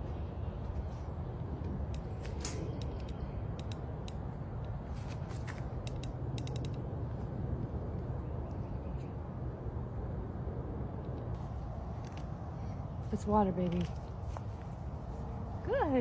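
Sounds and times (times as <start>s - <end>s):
tool clicking and creaking on fence: 1.9s - 7.0s.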